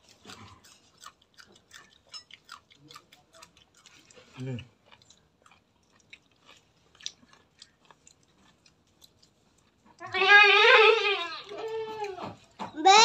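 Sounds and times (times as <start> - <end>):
chewing clicks: 0.0 - 10.1
goat bleating: 10.0 - 13.0.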